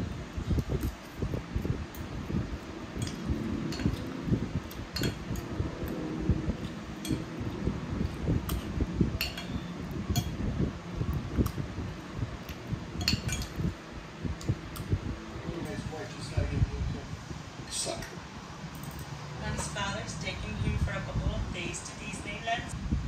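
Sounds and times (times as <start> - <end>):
low background rumble: 0.0 - 23.0
cutlery clinking on a plate: 9.2 - 10.3, 13.0 - 13.6.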